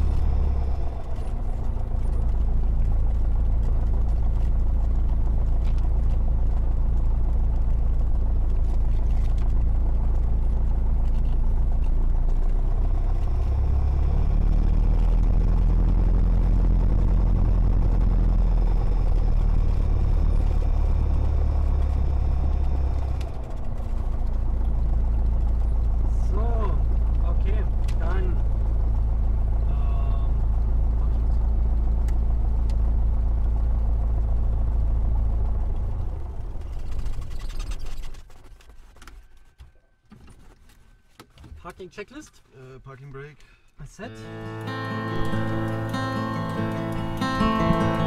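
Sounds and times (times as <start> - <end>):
propeller engine drone: 0.0 - 39.6, 44.0 - 48.0.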